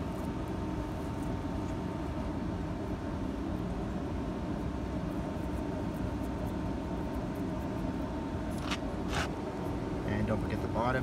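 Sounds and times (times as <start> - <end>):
low background rumble: 0.0 - 11.0
rustling scrapes: 8.5 - 9.4.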